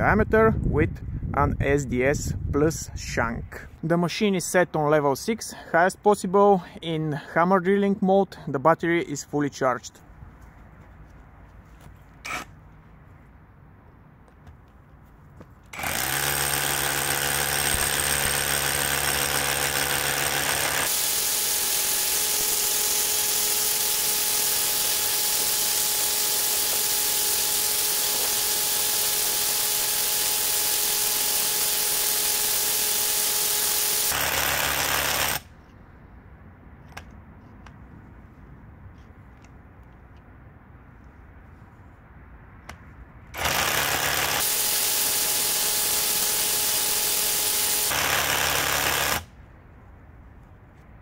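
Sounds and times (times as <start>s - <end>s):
hammer drill drilling into stone: 15.8s - 35.4s, 43.4s - 49.3s.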